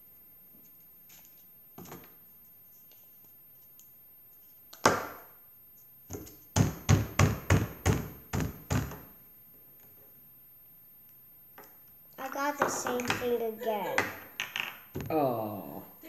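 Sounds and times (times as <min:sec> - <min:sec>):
plastic knocking on wooden table: 0:12.6 - 0:13.2.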